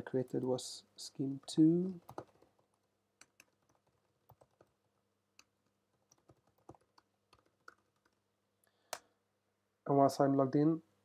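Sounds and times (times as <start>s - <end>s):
faint keyboard typing: 1.2s - 8.3s.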